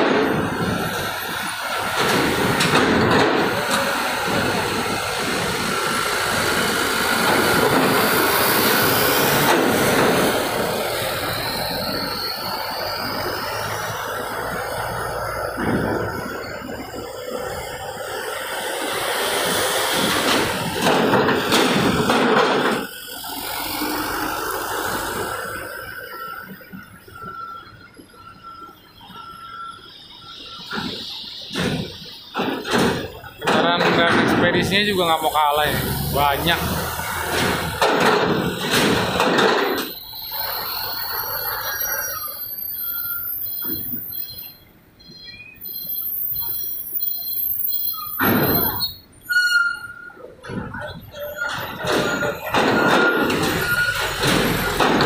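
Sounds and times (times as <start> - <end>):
tyres rushing on metal plates: 0.0 - 26.9, 30.7 - 42.3, 50.4 - 55.0
truck engine running: 0.0 - 43.3
rumble of vehicles: 0.0 - 55.0
truck driving over steel ramp: 0.0 - 55.0
metal clanks and knocks: 1.8 - 5.0, 19.9 - 22.9, 30.7 - 35.0, 36.6 - 40.0, 50.4 - 55.0.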